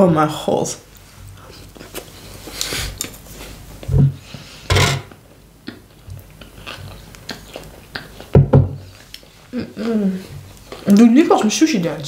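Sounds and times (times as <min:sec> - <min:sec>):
person chewing food: 0:01.2 - 0:03.9, 0:05.3 - 0:11.0
person humming: 0:09.5 - 0:10.3.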